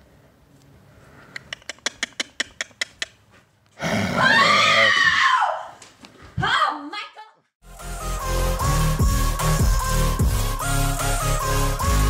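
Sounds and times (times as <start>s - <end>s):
sharp clicks: 1.3s - 3.2s
woman screaming: 4.1s - 5.8s.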